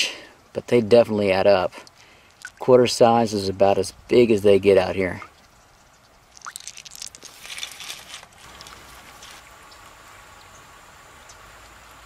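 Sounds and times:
small water splashes and drips: 1.8 - 2.7, 6.3 - 7.4.

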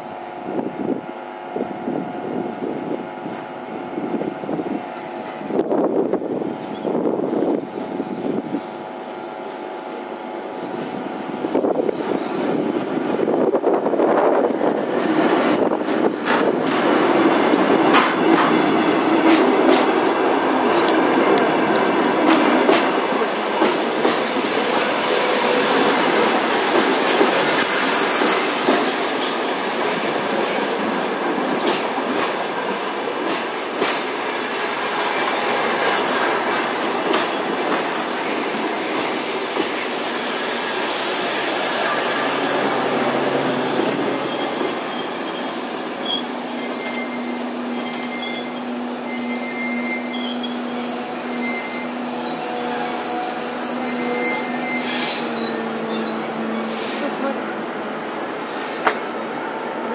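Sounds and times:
train wheels knocking over rail joints: 15.7 - 24.7, 26.5 - 34.6, 36.4 - 38.1
wheel and brake squeals: 25.0 - 59.5.

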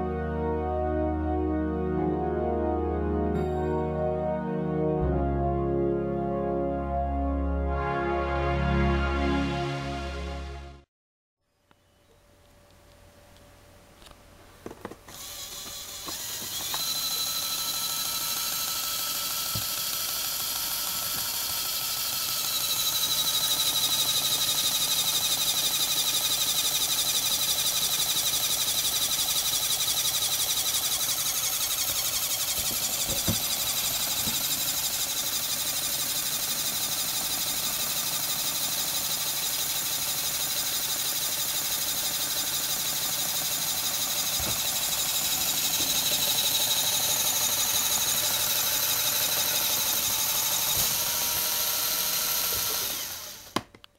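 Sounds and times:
electric motor whirring: 14.9 - 53.7.

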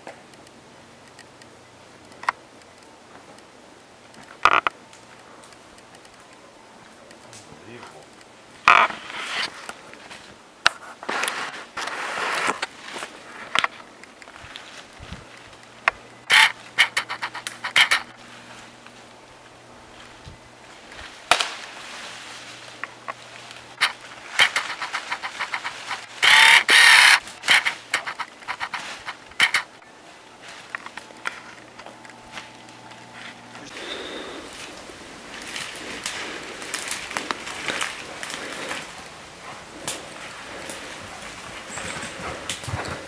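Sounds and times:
loud brushing rustle: 8.9 - 13.5, 20.1 - 30.7
footsteps crunching through undergrowth: 11.0 - 15.6, 19.8 - 26.3, 27.2 - 43.0
sticks snapping: 15.3 - 18.1, 21.2 - 21.8, 22.5 - 29.8, 35.4 - 39.0, 39.8 - 40.8.

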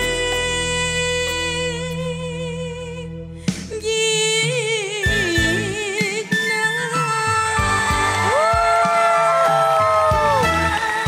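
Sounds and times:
woman singing: 0.0 - 9.2, 10.4 - 11.0
band playing: 7.6 - 11.0
low bass drum beats: 10.0 - 10.8.

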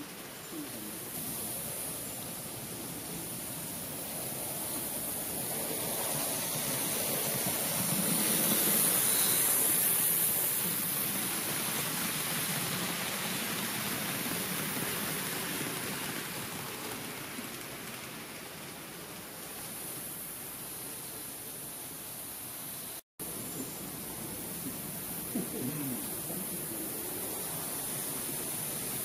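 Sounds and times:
model train wheels rolling: 0.0 - 21.5
steady hiss: 0.0 - 29.0.

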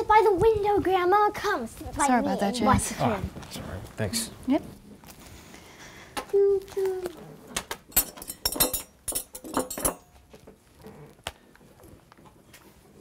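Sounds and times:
cutlery and dishes clinking: 7.9 - 10.2.

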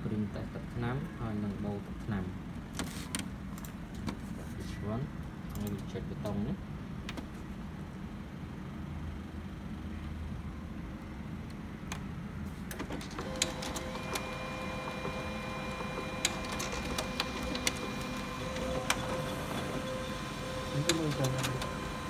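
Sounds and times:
printer clicks: 12.7 - 22.0
laser printer motors whining: 13.0 - 22.0.

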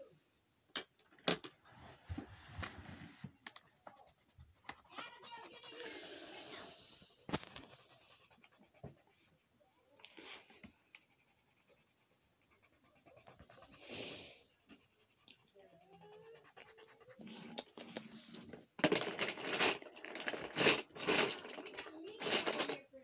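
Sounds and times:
pencil scratching on paper: 3.6 - 9.5, 10.1 - 17.6.

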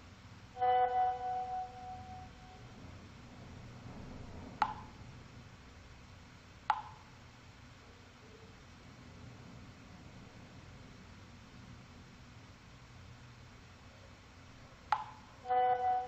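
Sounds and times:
two-note notification chime: 0.6 - 2.3.

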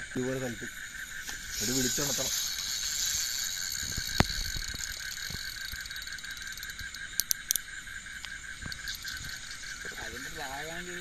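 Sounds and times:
frogs and insects pulsing: 0.0 - 11.0
thin high hiss: 0.2 - 11.0.

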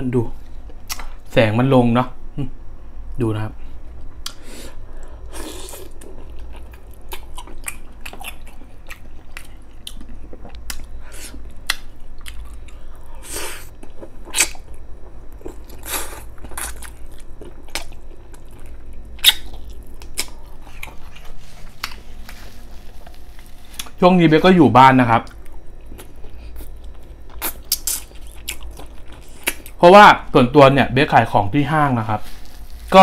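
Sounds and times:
person chewing with mouth smacks: 5.6 - 12.9, 13.6 - 24.0, 25.3 - 29.8.

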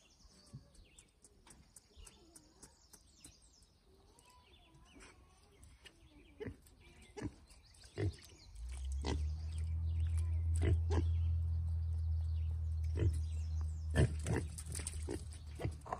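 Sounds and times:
piglets grunting: 10.5 - 11.2.

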